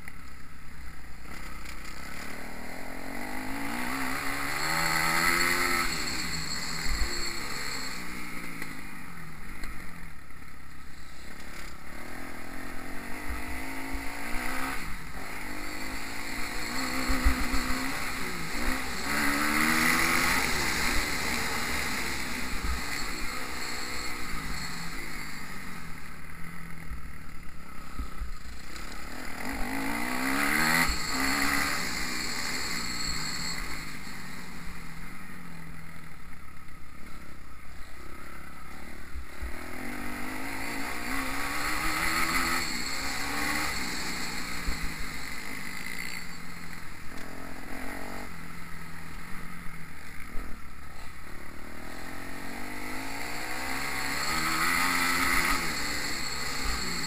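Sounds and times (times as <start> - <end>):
motocross bike engine revving: 0.8 - 57.0.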